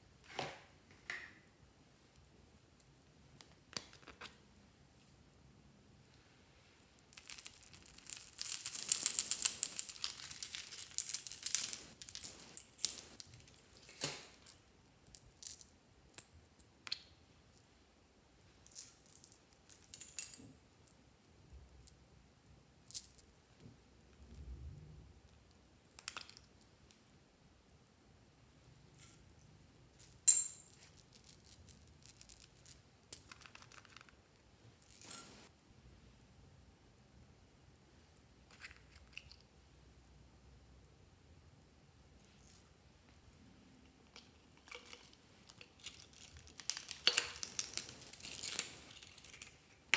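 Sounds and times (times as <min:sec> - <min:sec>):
tiny beads rattling: 0:07.1 - 0:14.6.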